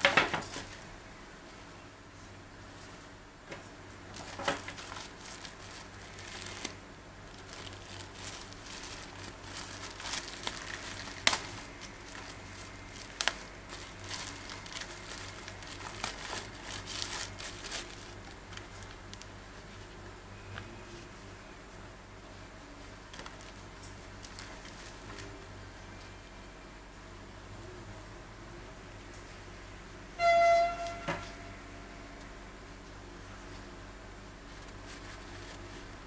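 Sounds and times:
plastic bag crinkling: 0:04.1 - 0:19.3, 0:23.0 - 0:25.4, 0:34.5 - 0:36.0.

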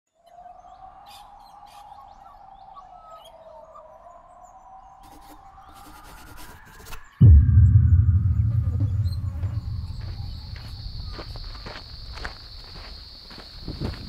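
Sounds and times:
steady tone rising in pitch: 0:07.2 - 0:11.3.

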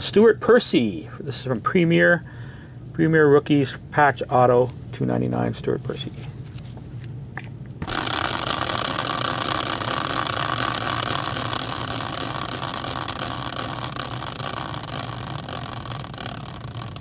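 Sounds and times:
spinning wheel whirring: 0:07.8 - 0:17.0.

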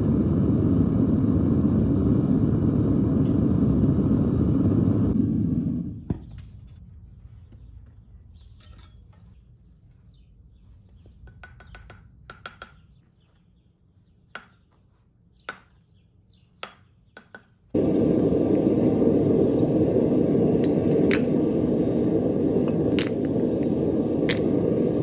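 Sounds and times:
furnace burner roar: 0:00.0 - 0:06.5, 0:17.7 - 0:25.0.

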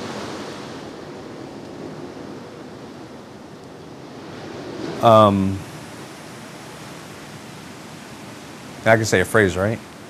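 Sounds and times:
room tone hiss: 0:05.0 - 0:10.0.

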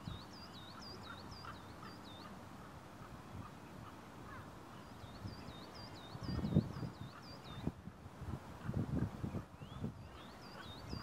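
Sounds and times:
songbird whistling notes: 0:09.6 - 0:11.0.

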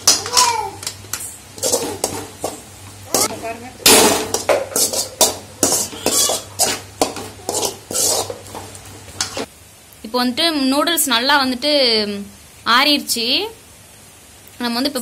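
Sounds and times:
light sizzle: 0:00.0 - 0:15.0
spatula scraping metal pan: 0:01.6 - 0:03.4, 0:04.2 - 0:09.5.

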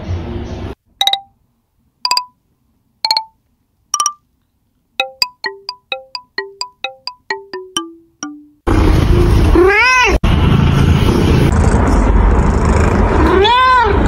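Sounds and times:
bell-like music notes: 0:01.0 - 0:01.3, 0:02.1 - 0:02.4, 0:03.1 - 0:03.4, 0:04.0 - 0:04.2, 0:05.0 - 0:08.7.

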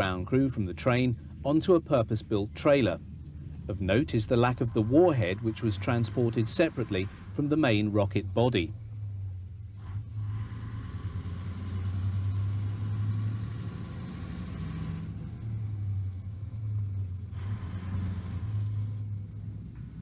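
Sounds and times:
low engine rumble: 0:00.0 - 0:20.0
hiss: 0:09.8 - 0:15.1, 0:17.3 - 0:19.0.

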